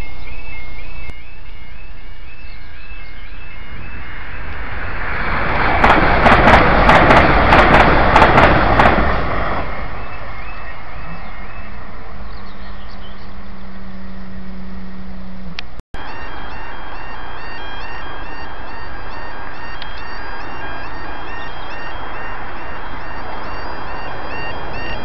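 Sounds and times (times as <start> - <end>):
electric train passing: 0.0 - 12.7, 13.3 - 25.0
steady low hum: 13.2 - 25.0
two-tone crossing alarm: 16.0 - 25.0.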